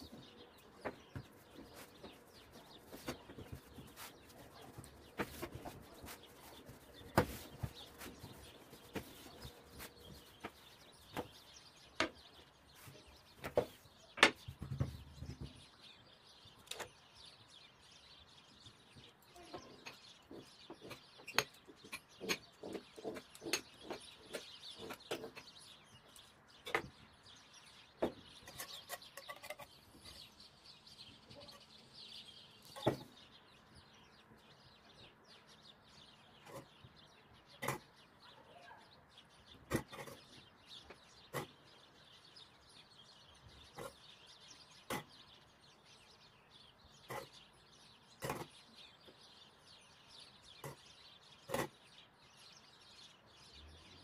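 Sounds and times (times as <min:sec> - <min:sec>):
dough handled on wooden board: 0:00.0 - 0:15.6
birds chirping and clucking: 0:00.0 - 0:54.0.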